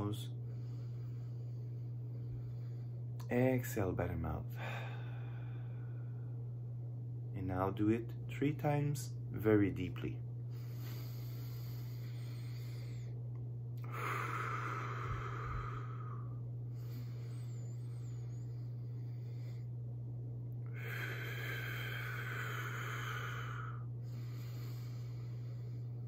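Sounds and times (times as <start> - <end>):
steady low hum: 0.0 - 26.0
man breathing deeply: 0.3 - 3.2, 4.5 - 6.4, 10.4 - 20.0, 20.6 - 26.0.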